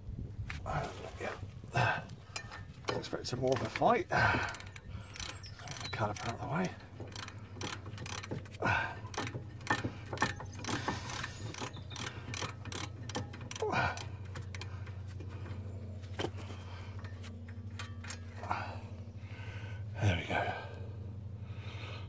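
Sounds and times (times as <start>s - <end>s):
steady low hum: 0.0s - 22.0s
metal clicks and clinks: 4.5s - 15.0s.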